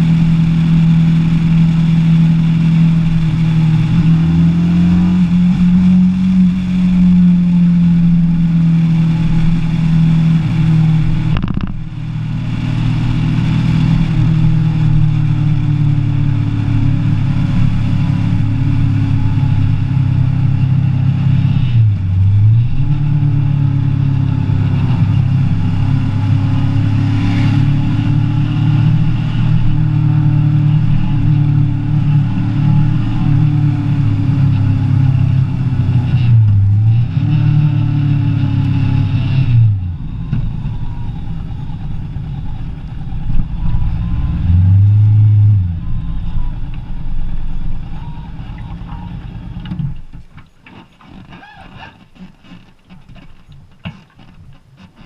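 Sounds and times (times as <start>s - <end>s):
motorcycle engine running: 0.0s - 50.1s.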